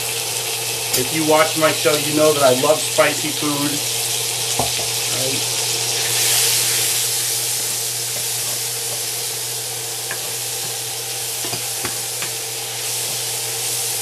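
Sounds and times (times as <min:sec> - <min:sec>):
meat sizzling in a skillet: 0:00.0 - 0:14.0
spatula stirring and tapping pan: 0:08.1 - 0:09.2, 0:10.1 - 0:10.8, 0:11.4 - 0:12.4.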